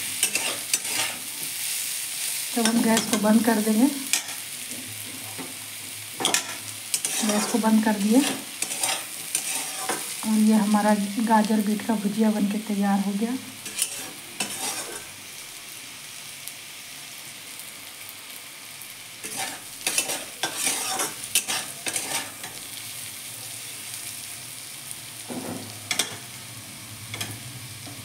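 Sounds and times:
faint sizzle: 0.0 - 28.0
spatula scraping a pan: 0.1 - 1.7, 6.2 - 10.2, 13.6 - 15.2, 19.2 - 22.6.

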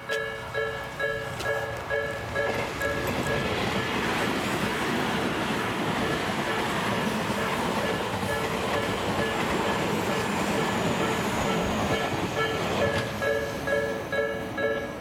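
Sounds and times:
level crossing alarm dinging: 0.0 - 4.0, 7.4 - 15.0
train wheels rumbling on rails: 0.0 - 15.0.

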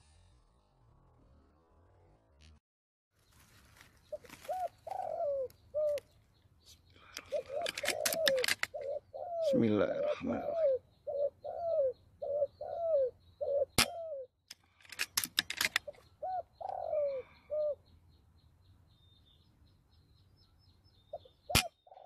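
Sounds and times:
doves cooing: 4.0 - 6.2, 7.0 - 14.3, 15.4 - 17.8, 21.1 - 22.0.

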